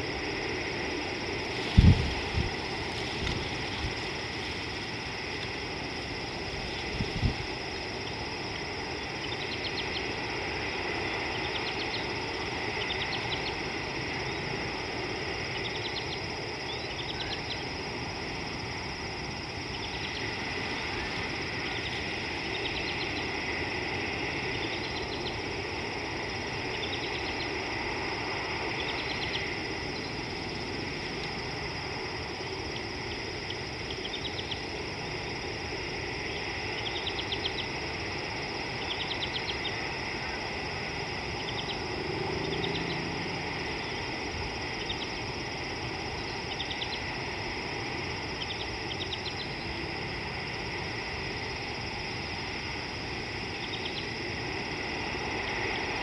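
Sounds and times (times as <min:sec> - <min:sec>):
constant high hum: 0:00.0 - 0:56.0.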